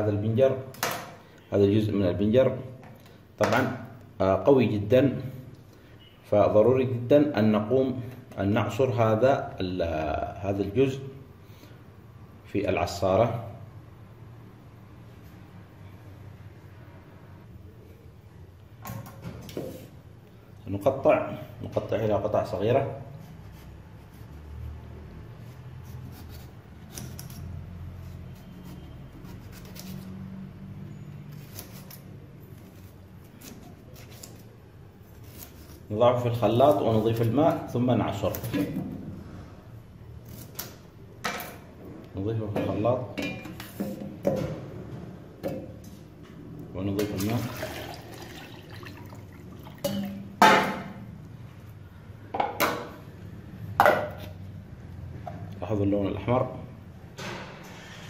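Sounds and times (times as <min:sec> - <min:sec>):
knife cutting beetroot: 0:25.4 - 0:30.4, 0:31.2 - 0:39.0, 0:40.1 - 0:41.0
water pouring into blender jar: 0:47.1 - 0:49.9.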